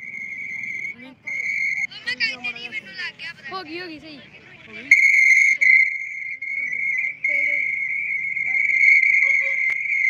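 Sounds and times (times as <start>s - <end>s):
high-pitched whistling tone: 0.0s - 1.9s, 4.9s - 10.0s.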